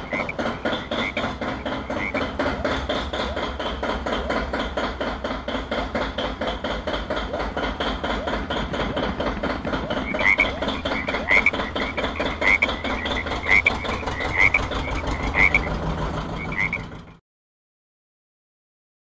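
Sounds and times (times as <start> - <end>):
frog croaking: 0.0 - 4.4, 7.3 - 17.1.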